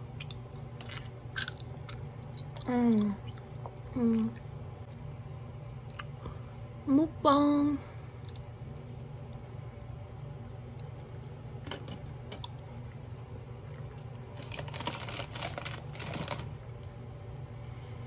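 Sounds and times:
chewing mouth clicks and smacks: 0.0s - 3.8s
steady low hum: 0.0s - 18.0s.

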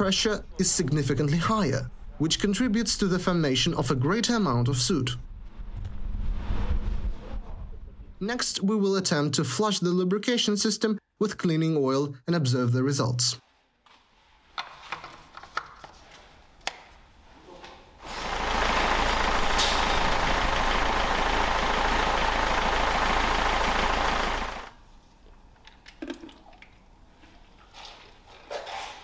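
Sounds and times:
diesel engine idling: 18.0s - 24.8s.

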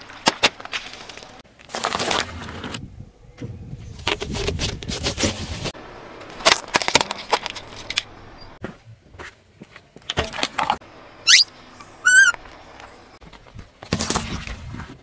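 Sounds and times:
objects crunching under car tyre: 0.0s - 2.8s
high squeaks: 11.3s - 12.4s.

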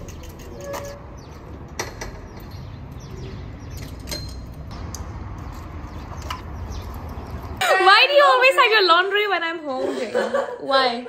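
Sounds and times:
bicycle clicks: 0.0s - 7.5s
low traffic rumble: 0.0s - 10.7s.

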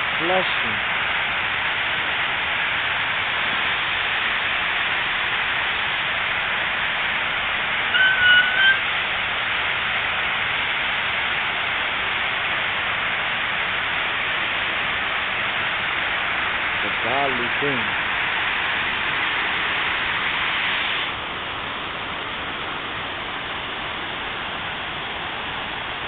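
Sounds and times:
fountain spray splashing: 0.0s - 26.0s
high whistle-like tone: 7.9s - 8.8s.

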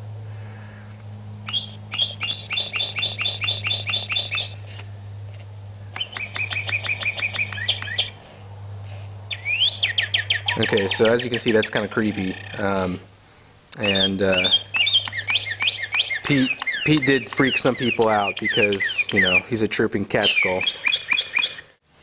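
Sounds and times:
steady low hum: 0.0s - 22.0s
electronic bird chirping: 1.4s - 4.6s, 5.9s - 8.2s, 9.3s - 13.0s, 13.8s - 19.6s.

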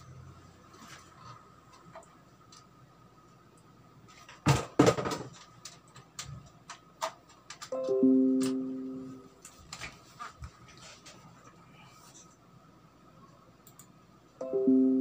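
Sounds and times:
electronic chime: 14.4s - 15.0s.

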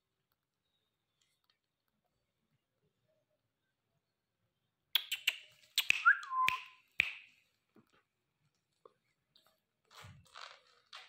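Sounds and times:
parrot beak clicks: 5.0s - 7.2s.

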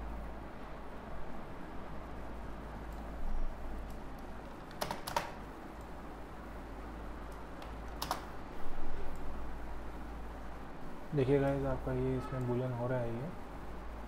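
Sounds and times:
low electrical hum: 0.0s - 14.0s
keyboard keystrokes clicking: 3.9s - 5.4s, 7.3s - 8.3s.

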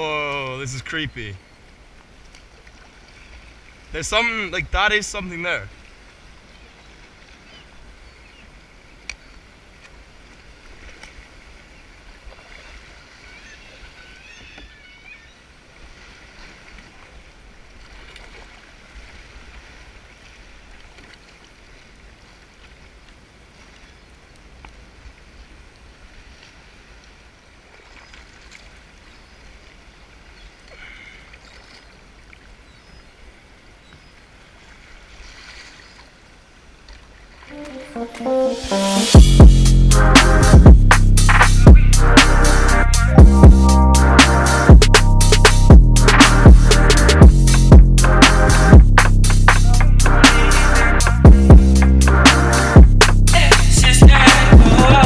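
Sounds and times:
water lapping around kayak: 0.0s - 38.0s
steady low rumble: 39.2s - 55.0s.

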